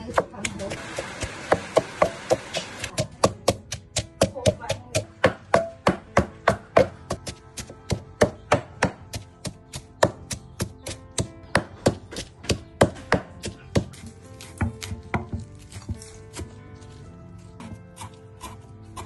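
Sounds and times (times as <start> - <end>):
cleaver chopping on wooden board: 0.0 - 16.6, 17.6 - 19.0
pestle pounding in stone mortar: 0.0 - 16.6, 17.6 - 19.0.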